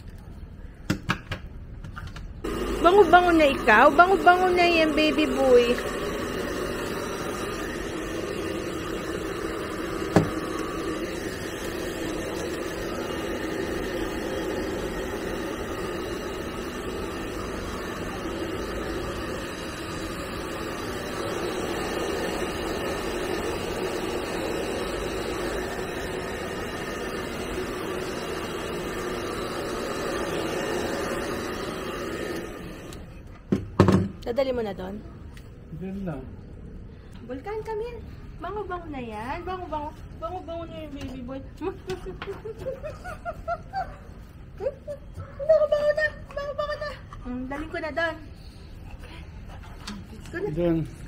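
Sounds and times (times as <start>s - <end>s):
hair dryer running: 2.4s - 33.1s.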